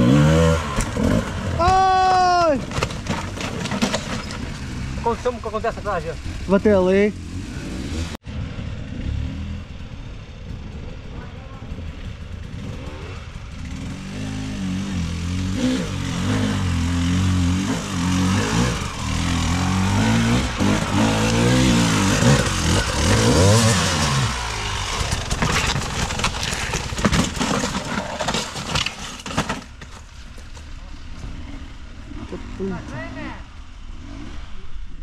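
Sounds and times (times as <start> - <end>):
motorcycle engine revving: 0.0 - 2.0, 3.9 - 29.5, 31.0 - 35.0
sharp knocks and clatter: 2.6 - 5.0, 20.2 - 31.4.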